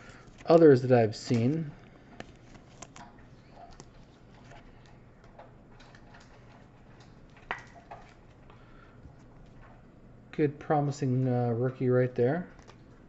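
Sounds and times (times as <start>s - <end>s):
plastic card sleeve rustling: 0.0s - 5.0s, 12.5s - 12.9s.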